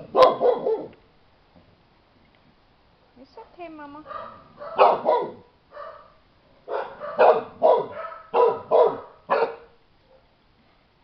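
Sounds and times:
dog barking: 0:00.0 - 0:01.0, 0:04.0 - 0:10.3.

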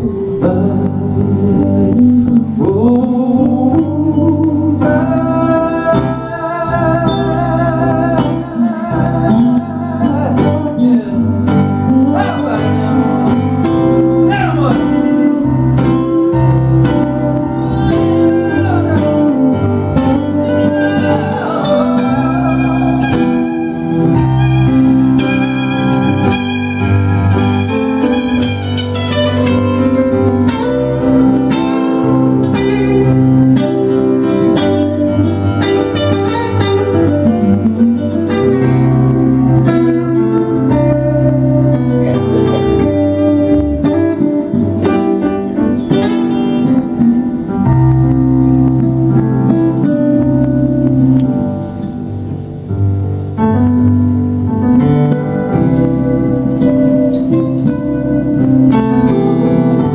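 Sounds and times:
electric guitar lines: 0:00.0 - 0:59.9
keyboard chords: 0:00.0 - 0:59.9.

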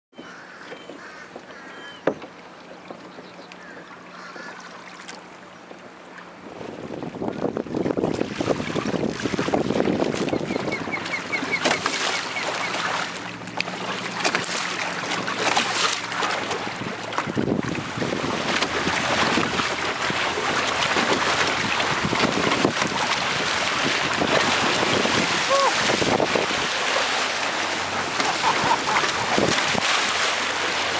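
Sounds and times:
water rushing along a hull: 0:00.1 - 0:30.9
wind buffeting microphone: 0:06.4 - 0:11.8, 0:16.3 - 0:26.9, 0:27.5 - 0:30.2.

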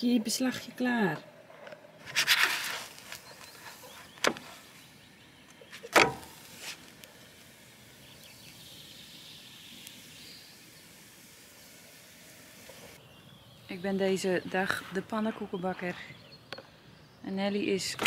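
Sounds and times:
pancake frying hiss: 0:02.2 - 0:13.6.

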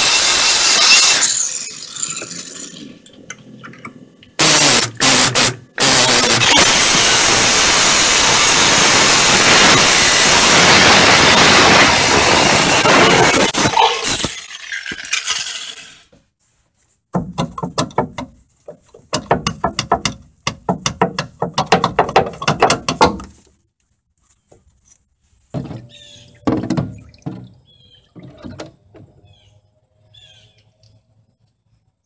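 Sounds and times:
scattered knocks: 0:17.1 - 0:23.4, 0:25.6 - 0:27.6
bird chirping: 0:25.8 - 0:28.2, 0:29.1 - 0:31.0.

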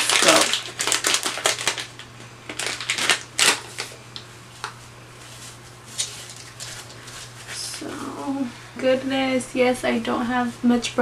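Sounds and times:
wipe rustling and crinkling: 0:03.7 - 0:07.7.

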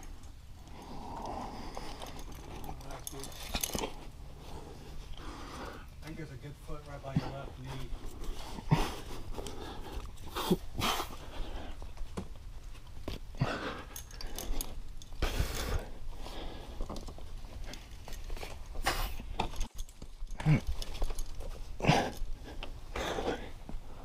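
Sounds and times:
person breathing hard: 0:00.0 - 0:02.8, 0:04.2 - 0:06.0, 0:07.2 - 0:12.0, 0:13.4 - 0:17.8, 0:21.8 - 0:24.0
low voiced grunt: 0:20.4 - 0:20.7.

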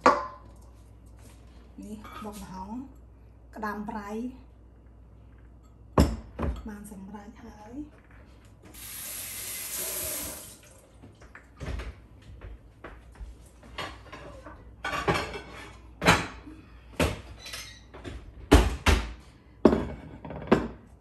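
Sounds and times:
kitchen tap running: 0:08.7 - 0:11.0
dishes clinking: 0:13.8 - 0:16.4.

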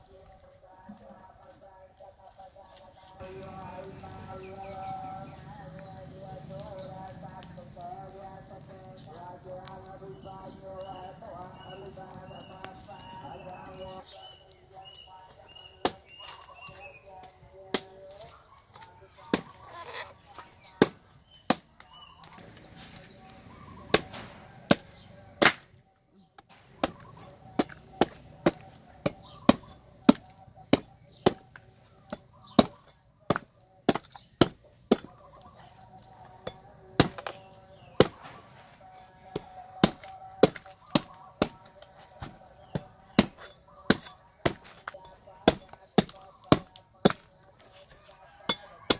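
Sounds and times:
cleaver chopping coconut husk: 0:15.5 - 0:16.9, 0:19.3 - 0:19.9, 0:20.6 - 0:25.7, 0:26.7 - 0:35.5, 0:36.4 - 0:48.9.

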